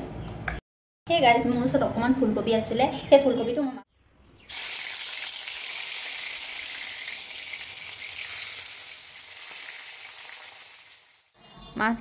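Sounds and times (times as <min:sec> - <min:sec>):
fish sizzling in hot oil: 0:04.5 - 0:11.3.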